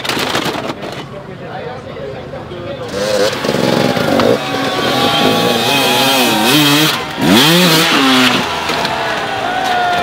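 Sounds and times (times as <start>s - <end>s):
dirt bike engine revving: 2.8s - 9.0s.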